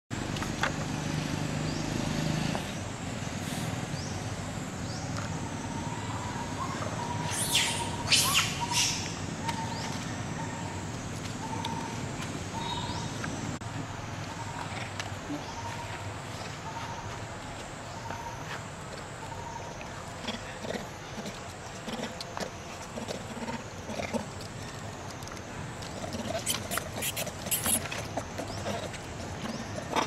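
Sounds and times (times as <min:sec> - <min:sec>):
steady outdoor hiss: 0:00.1 - 0:30.0
high-pitched animal calls: 0:05.7 - 0:09.7, 0:26.2 - 0:27.9.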